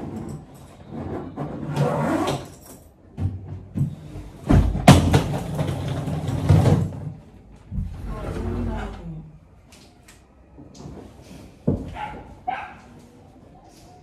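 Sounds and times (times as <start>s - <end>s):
suitcase scraping and rustling: 0.0s - 2.8s.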